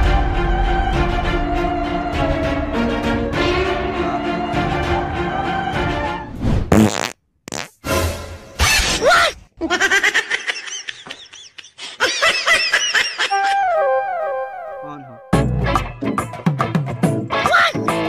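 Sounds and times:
sped-up cartoon laughing: 8.6s - 13.8s.

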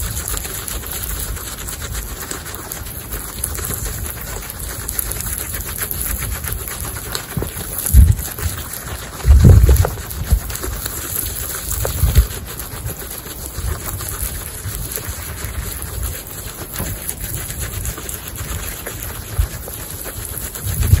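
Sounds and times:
guinea pigs chewing grass: 0.0s - 21.0s
dull low thumps: 7.4s - 8.6s, 9.2s - 10.6s.

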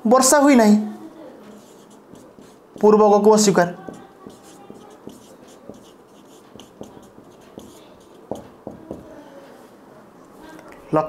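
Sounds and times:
marker pen writing on whiteboard: 1.4s - 9.3s.

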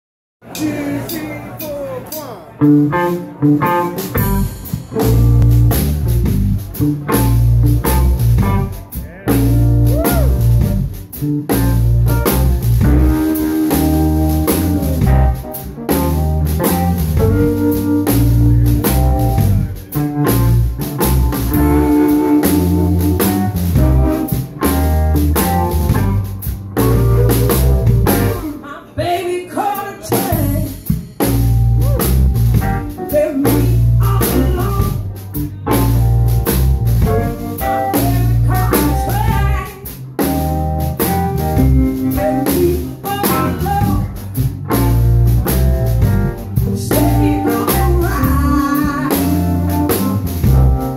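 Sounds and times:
drum kit: 0.5s - 28.6s, 29.8s - 50.9s
electric bass: 2.6s - 28.6s, 30.3s - 50.9s
electric guitar: 2.6s - 28.7s, 30.1s - 50.9s.

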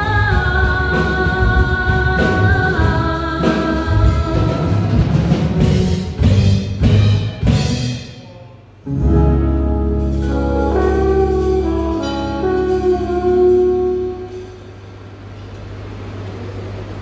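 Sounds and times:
drum hit: 1.4s - 8.2s
band holding sustained chord: 8.8s - 15.2s.

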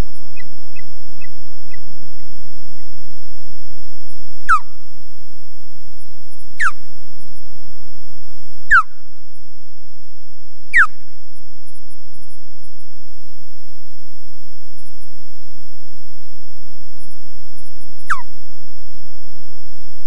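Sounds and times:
high-pitched electronic whine: 0.0s - 20.0s
osprey whistled alarm calls: 4.4s - 4.7s, 6.6s - 6.8s, 8.7s - 8.9s, 10.7s - 11.1s, 18.0s - 18.3s.

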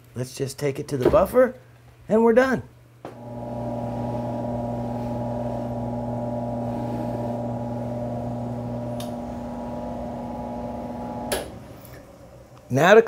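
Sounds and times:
polishing buffer humming and whining: 3.1s - 12.5s.

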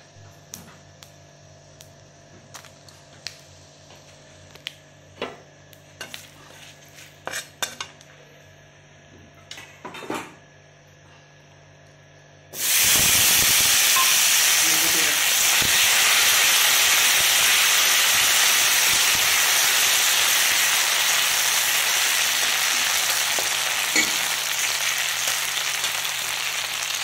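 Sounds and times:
potatoes sizzling in hot oil: 12.6s - 27.0s.

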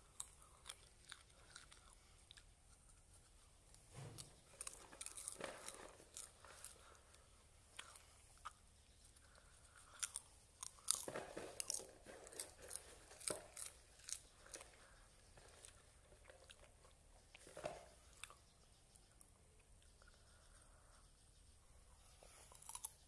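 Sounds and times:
popcorn being chewed: 0.0s - 21.1s, 22.0s - 23.0s.

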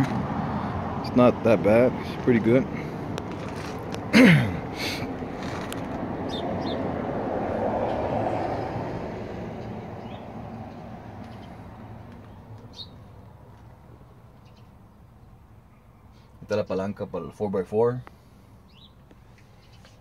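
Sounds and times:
vehicle passing by: 0.0s - 14.1s.

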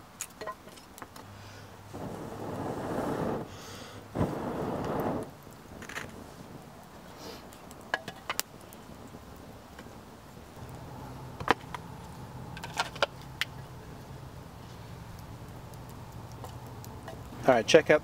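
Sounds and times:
campfire crackling and popping: 0.0s - 18.0s.

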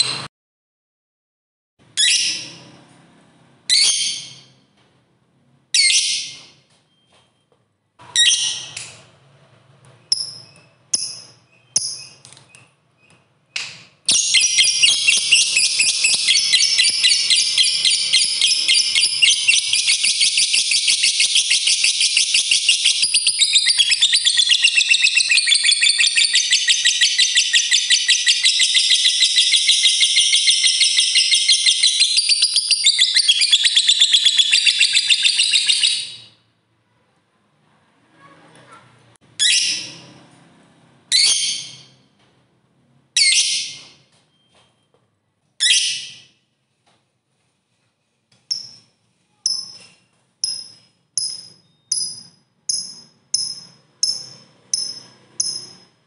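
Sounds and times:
lovebird chirping and trilling: 2.0s - 2.6s, 3.7s - 4.6s, 5.8s - 6.6s, 8.1s - 8.9s, 10.0s - 36.4s, 39.4s - 40.1s, 41.1s - 42.0s, 43.2s - 44.5s, 45.6s - 46.4s, 48.5s - 56.0s.

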